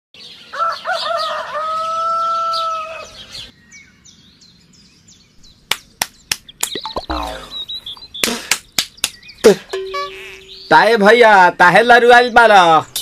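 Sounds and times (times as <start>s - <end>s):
small birds chirping: 0.2s - 13.0s
rooster crowing: 0.5s - 3.2s
sharp slaps: 5.7s - 7.4s, 8.2s - 9.3s.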